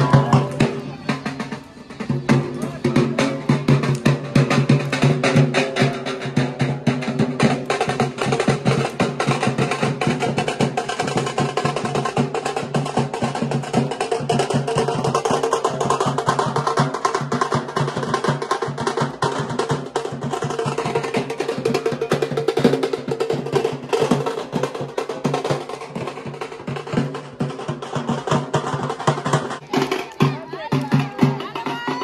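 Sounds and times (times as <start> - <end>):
drums played fast: 0.0 - 32.0.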